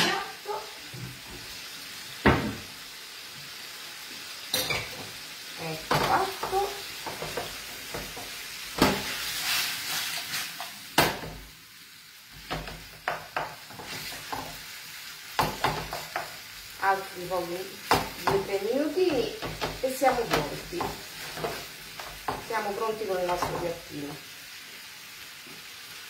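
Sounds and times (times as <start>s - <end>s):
food sizzling in a frying pan: 0.0s - 26.0s
wooden spoon scraping a pan: 5.9s - 10.7s, 12.4s - 14.6s, 18.0s - 23.8s.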